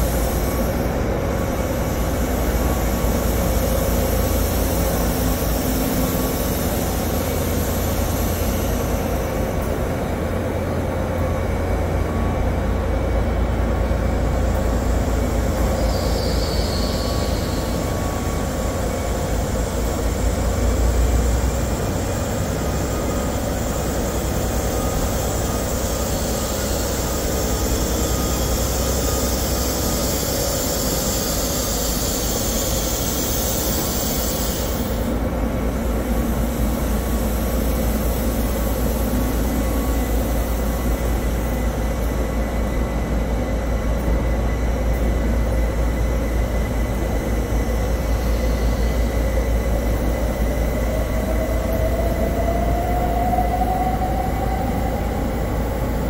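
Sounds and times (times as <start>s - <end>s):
train engines rumbling and humming: 0.0s - 56.0s
high hiss: 14.6s - 41.4s
rising whine: 47.4s - 56.0s.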